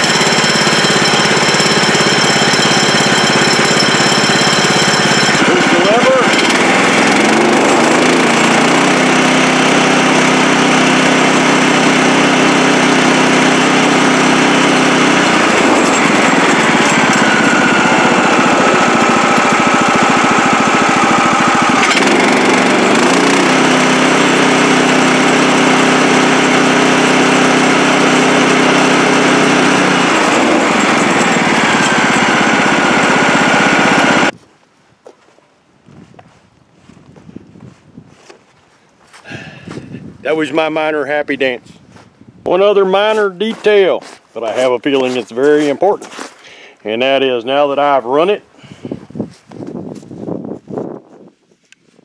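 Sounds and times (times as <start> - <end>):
sawmill engine running: 0.0 - 34.4, 42.5 - 48.8.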